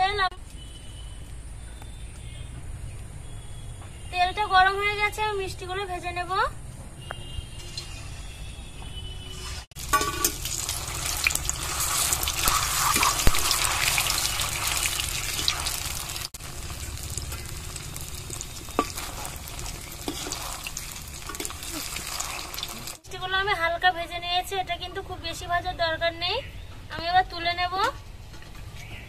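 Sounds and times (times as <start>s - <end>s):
dough deep-frying in oil: 9.3s - 23.1s.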